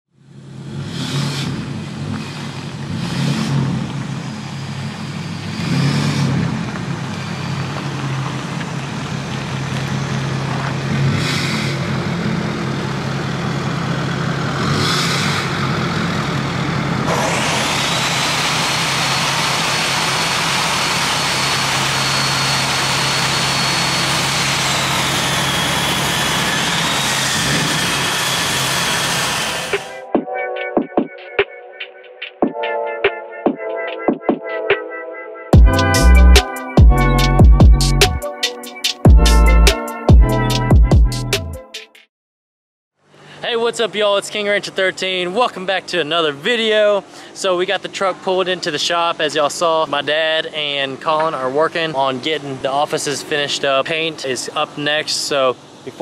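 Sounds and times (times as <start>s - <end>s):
diesel engine running and revving: 0.1s - 30.1s, 35.6s - 38.4s, 39.0s - 41.6s
high held whistle: 17.6s - 30.1s.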